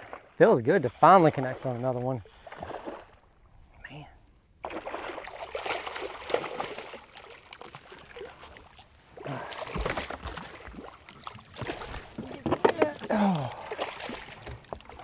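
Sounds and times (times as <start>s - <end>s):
water splashing and sloshing: 0.0s - 15.0s.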